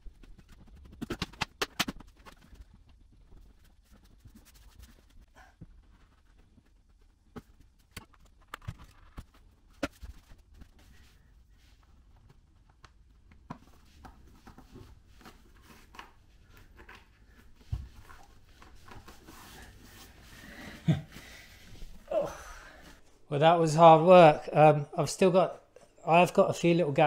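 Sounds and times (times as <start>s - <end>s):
vinyl tiles tapping and rustling: 0.0s - 11.1s, 12.1s - 19.6s.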